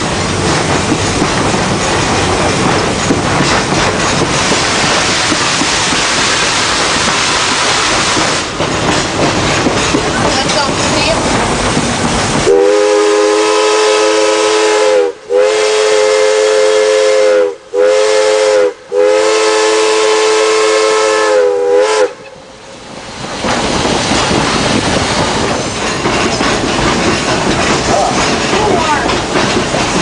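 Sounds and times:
train rolling along track: 0.0 - 30.0
steam locomotive chime whistle: 12.5 - 22.4.

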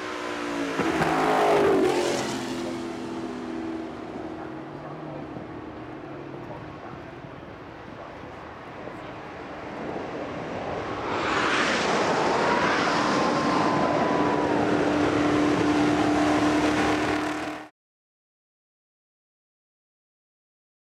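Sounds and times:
racing car engine passing: 0.0 - 6.3, 9.9 - 17.7.

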